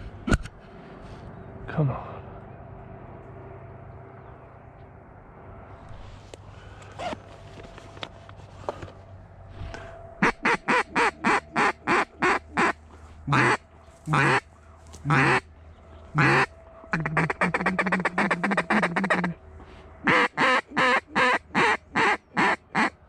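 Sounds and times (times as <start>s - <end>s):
duck call quacks: 10.2s - 15.4s, 16.2s - 19.4s, 20.0s - 23.0s.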